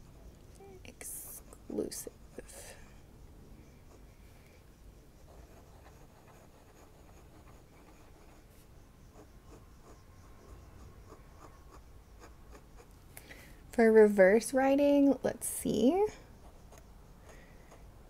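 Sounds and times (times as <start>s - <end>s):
fountain pen scratching on paper: 5.2s - 12.9s.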